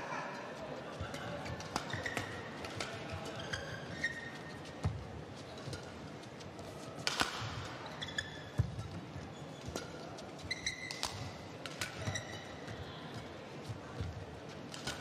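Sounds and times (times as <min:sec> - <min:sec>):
racket striking shuttlecock: 0:01.2 - 0:03.1, 0:07.0 - 0:07.7, 0:10.9 - 0:12.6, 0:14.1 - 0:15.0
shoe squeaks on court: 0:01.3 - 0:04.8, 0:07.6 - 0:12.6.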